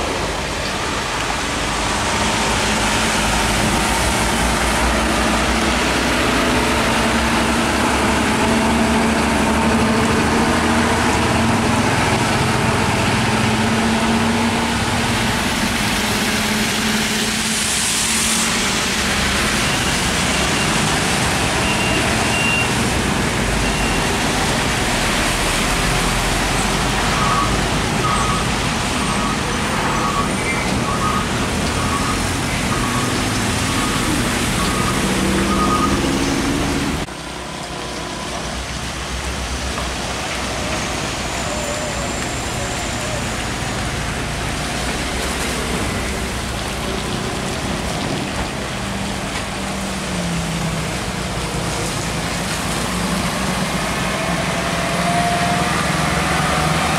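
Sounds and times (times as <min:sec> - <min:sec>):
trucks and motorcycles passing: 0:00.0 - 0:56.9
tyres hissing on wet road: 0:00.0 - 0:56.9.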